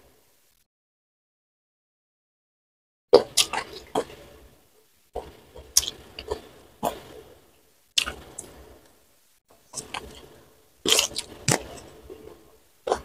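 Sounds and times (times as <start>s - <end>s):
wet chewing and mouth smacks: 8.0s - 8.5s, 9.7s - 13.0s.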